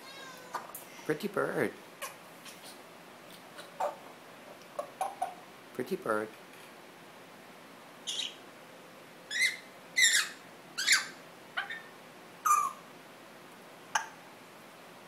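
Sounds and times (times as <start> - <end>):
parrot whistling and chirping: 8.0 - 8.4, 9.3 - 12.8.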